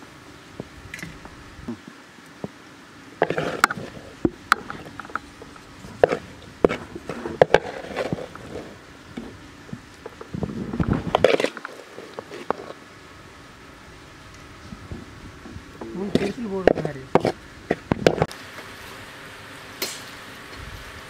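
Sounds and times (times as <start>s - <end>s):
wooden spatula scraping metal pan: 3.2s - 9.3s, 11.0s - 12.8s, 15.8s - 18.3s.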